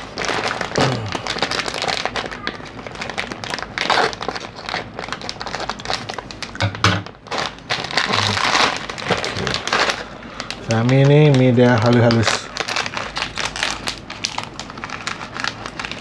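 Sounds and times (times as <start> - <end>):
plastic packaging crinkling: 0.0 - 16.0.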